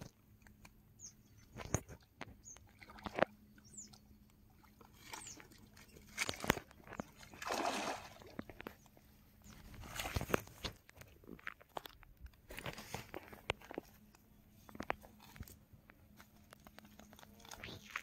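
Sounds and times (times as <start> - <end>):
fish splashing in water: 4.5 - 8.7.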